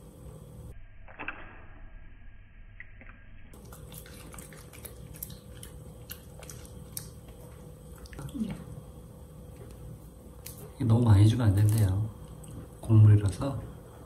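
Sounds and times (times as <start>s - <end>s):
dog chewing corn: 3.6s - 8.8s, 9.4s - 12.8s.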